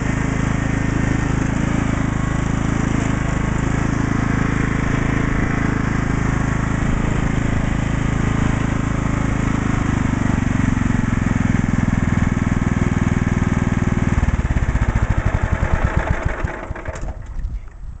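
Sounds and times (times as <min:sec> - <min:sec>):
lawn tractor engine running: 0:00.0 - 0:18.0.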